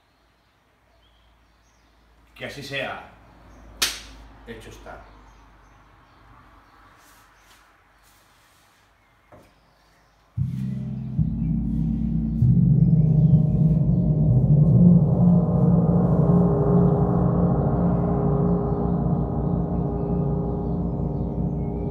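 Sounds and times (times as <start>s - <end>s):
large gong struck and ringing: 10.4s - 21.9s.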